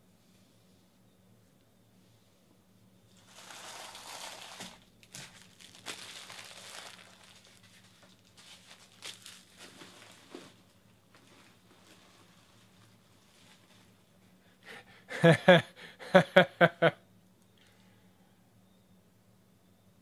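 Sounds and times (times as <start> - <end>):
plastic wrappers crinkling: 3.1 - 14.0.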